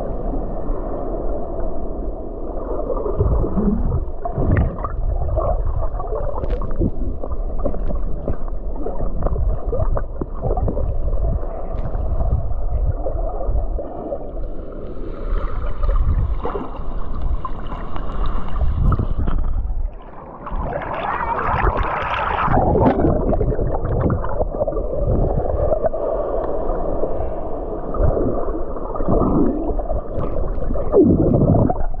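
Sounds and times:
churning seawater rushing: 0:20.4 - 0:25.9.

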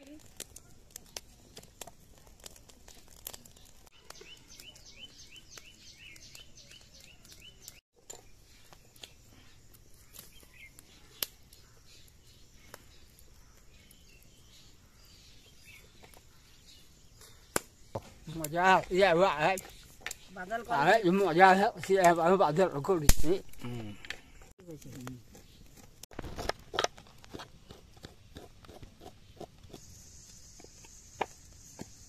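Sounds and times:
wood fire crackling: 0:00.0 - 0:32.0
bird chirping: 0:03.0 - 0:25.9.

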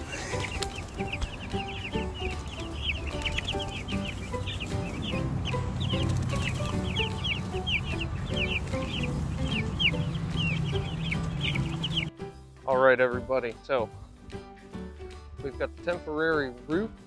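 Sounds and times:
chicks peeping: 0:00.0 - 0:12.2.

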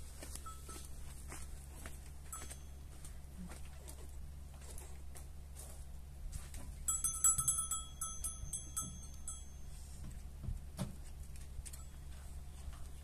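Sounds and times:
steady low hum: 0:00.0 - 0:13.0
metallic jingling: 0:06.9 - 0:09.7.

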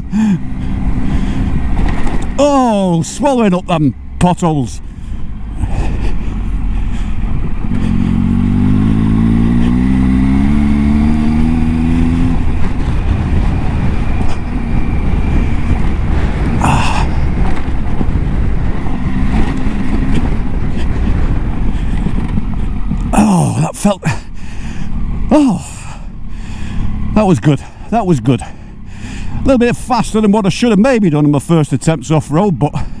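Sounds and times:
tyre and wind noise: 0:00.0 - 0:03.5, 0:04.8 - 0:24.2
motorcycle engine accelerating: 0:00.0 - 0:31.4.

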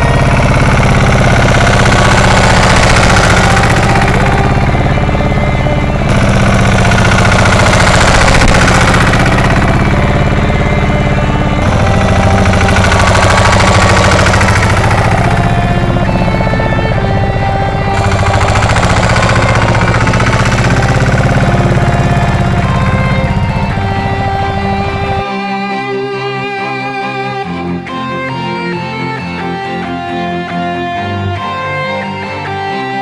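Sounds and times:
tractor diesel engine knocking: 0:00.0 - 0:25.2.

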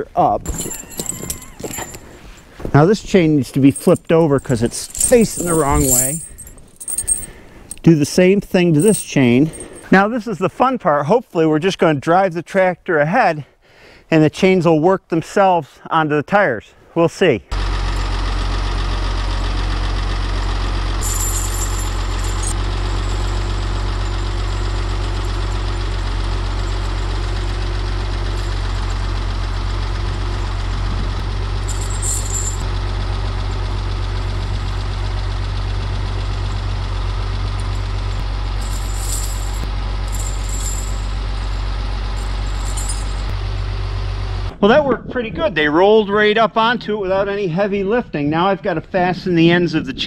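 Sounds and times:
high-pitched clinks: 0:00.5 - 0:02.5, 0:03.5 - 0:07.9, 0:08.7 - 0:10.0, 0:21.0 - 0:27.4, 0:28.3 - 0:29.1, 0:31.7 - 0:32.6, 0:37.6 - 0:43.3
tractor engine idling: 0:17.6 - 0:43.8.

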